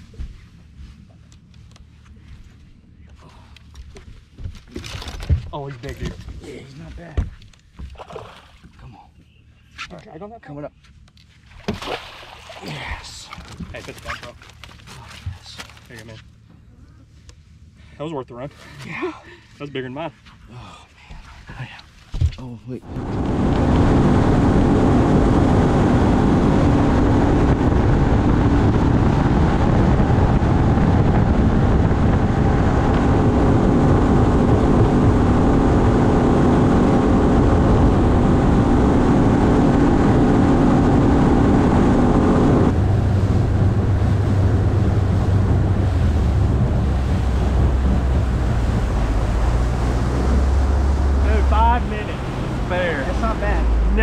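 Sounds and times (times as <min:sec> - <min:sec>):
outboard motor running: 0:11.1 - 0:20.0, 0:22.8 - 0:54.0
water rushing past hull: 0:11.5 - 0:15.8, 0:22.8 - 0:54.0
wind on microphone: 0:22.8 - 0:54.0.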